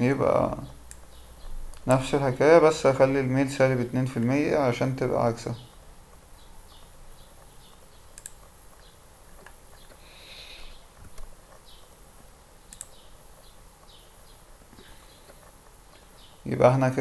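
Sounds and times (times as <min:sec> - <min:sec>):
background hiss: 0:00.0 - 0:17.0
sharp clicks: 0:00.9 - 0:02.0, 0:06.8 - 0:11.8, 0:12.7 - 0:14.0.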